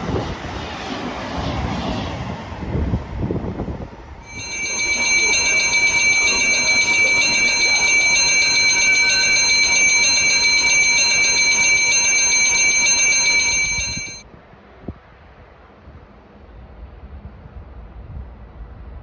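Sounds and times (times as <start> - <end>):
warning bell ringing: 4.2 - 14.2.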